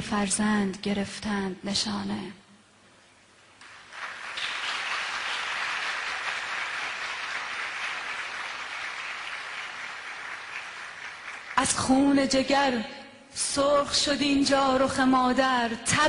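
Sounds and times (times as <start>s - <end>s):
audience applauding: 3.6s - 11.9s.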